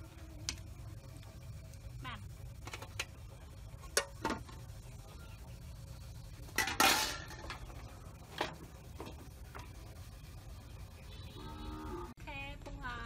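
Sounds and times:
metal cookware clinking: 0:06.5 - 0:07.8
metal lid clanking on pot: 0:06.6 - 0:07.7.

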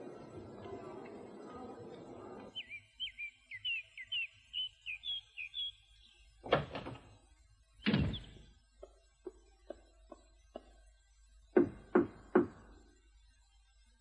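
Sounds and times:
high bird chirps: 0:02.5 - 0:06.3
loud door thuds: 0:07.8 - 0:08.5.

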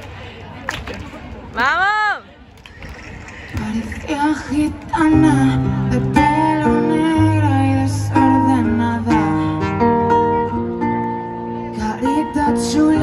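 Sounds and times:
live pop music: 0:03.2 - 0:13.0.

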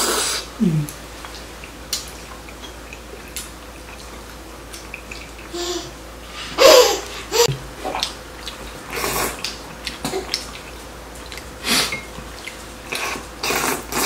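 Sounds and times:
chewing: 0:00.8 - 0:05.5, 0:07.8 - 0:14.0
slurping noodles: 0:08.9 - 0:09.5, 0:12.9 - 0:14.0.

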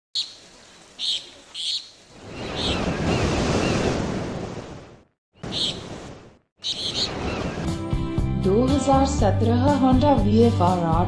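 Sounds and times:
ocean wave surging and washing: 0:00.5 - 0:08.2.

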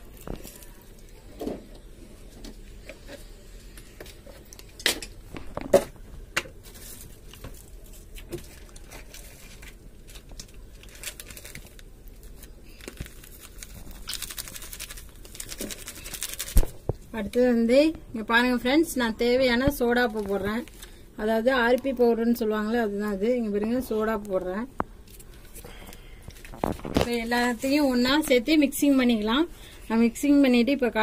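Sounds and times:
crinkling rustle: 0:06.6 - 0:17.0, 0:20.0 - 0:21.0, 0:25.0 - 0:29.8.

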